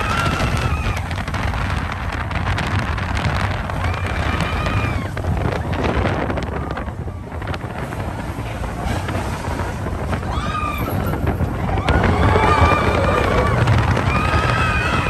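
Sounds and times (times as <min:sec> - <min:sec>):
riders screaming: 0:00.0 - 0:01.9, 0:03.5 - 0:07.9, 0:09.5 - 0:15.0
roller coaster rumbling on track: 0:00.0 - 0:15.0
wind buffeting microphone: 0:00.0 - 0:15.0.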